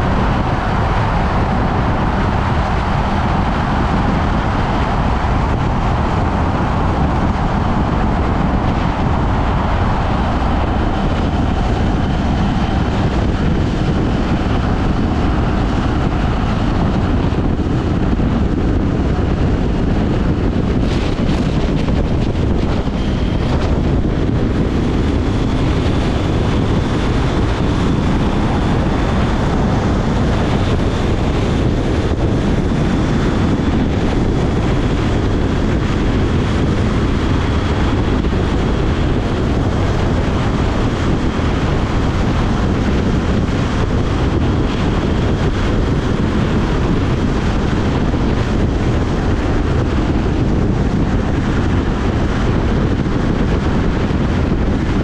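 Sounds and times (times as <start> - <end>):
motorcycle engine cruising: 0.0 - 55.0
wind rush on microphone: 0.0 - 55.0.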